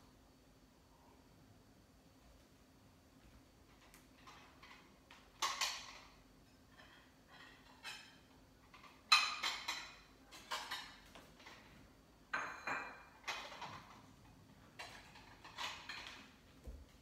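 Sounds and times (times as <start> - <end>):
dishes clinking and clattering: 3.8 - 16.4.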